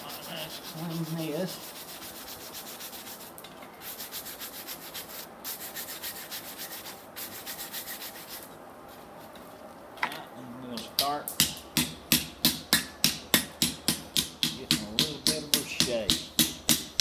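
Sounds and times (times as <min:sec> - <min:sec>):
wire brush scrubbing steel: 0:00.0 - 0:08.5.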